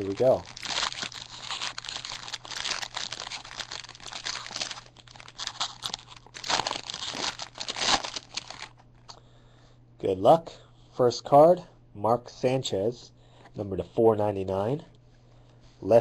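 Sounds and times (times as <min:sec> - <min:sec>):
wrapper being torn and crinkled: 0:00.0 - 0:08.8.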